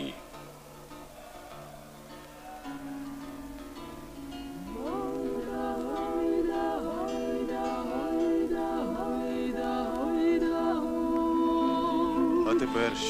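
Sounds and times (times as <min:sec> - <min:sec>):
women singing in harmony: 0:04.6 - 0:13.0.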